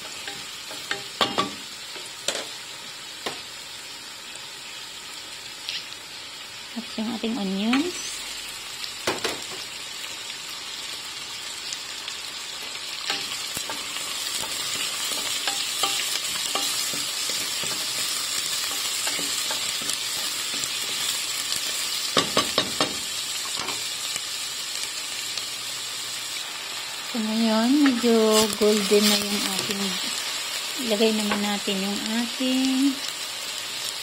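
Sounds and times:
onions sizzling in oil: 0.0 - 34.0
wooden spatula knocking on pan: 22.2 - 23.0.

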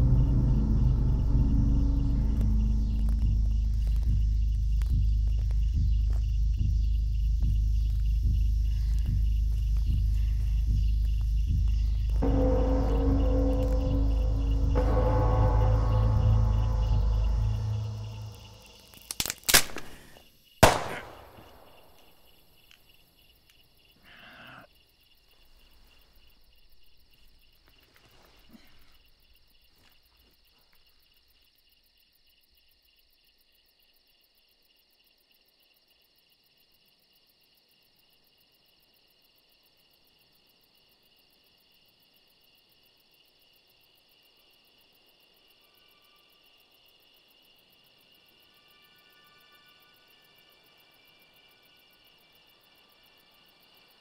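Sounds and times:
insects chirring: 0.0 - 54.0
sharp cracks: 18.3 - 22.8
faint rustles: 25.2 - 31.0.

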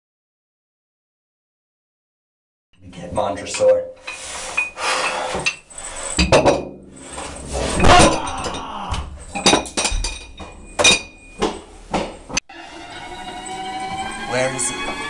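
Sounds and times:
sharp metallic clinks and knocks: 5.4 - 12.2.

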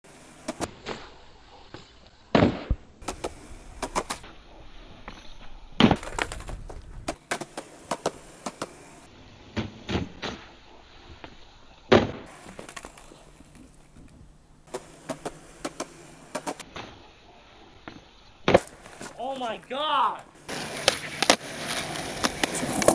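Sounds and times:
skateboard wheels rolling: 0.1 - 22.9
skateboard clacks and pops: 1.7 - 4.2, 5.8 - 8.8, 11.9 - 17.0, 20.5 - 22.9
skateboard slamming on pavement: 2.3 - 4.2, 11.9 - 13.1, 18.4 - 19.2, 20.5 - 22.9.

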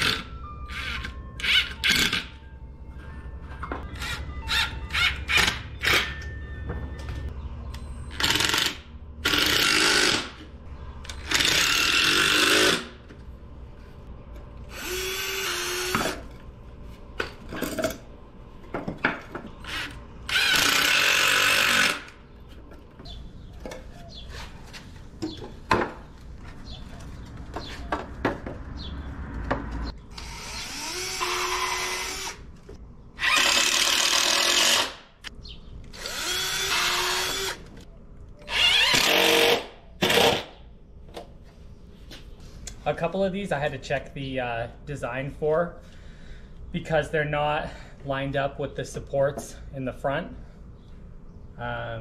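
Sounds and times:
cordless drill running: 14.7 - 16.2, 19.6 - 22.1, 30.1 - 32.4, 33.2 - 35.0, 35.9 - 37.7, 38.5 - 40.5
lumber and tools knocking: 27.5 - 28.7.

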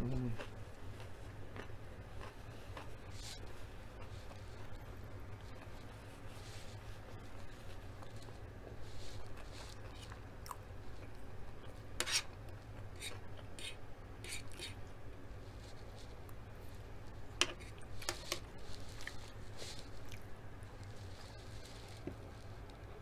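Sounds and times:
low steady hum: 0.0 - 23.0
metal spoon scraping tray: 12.0 - 12.3.

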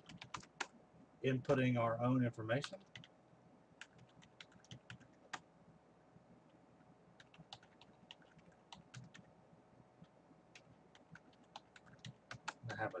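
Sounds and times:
faint keyboard keystrokes: 7.2 - 9.3.

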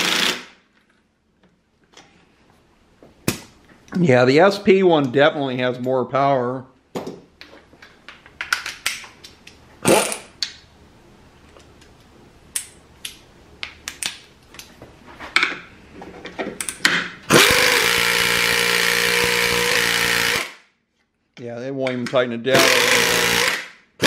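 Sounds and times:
tools clicking and knocking: 7.0 - 9.6
air ratchet running: 17.3 - 20.6, 22.6 - 23.6.

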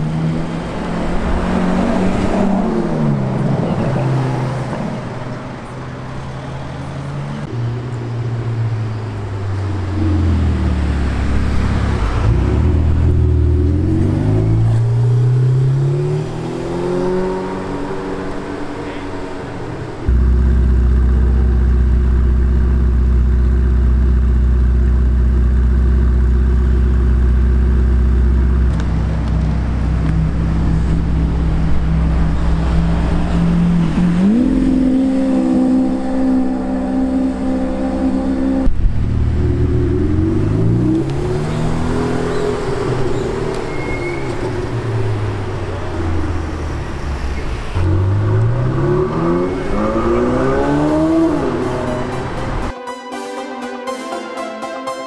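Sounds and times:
supercar engine revving: 8.8 - 52.7
car accelerating through gears: 9.7 - 20.3, 30.8 - 52.7.

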